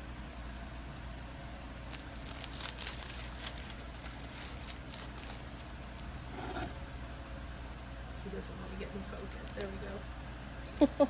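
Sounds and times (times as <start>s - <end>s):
plastic sleeves crinkling: 0.5s - 6.1s.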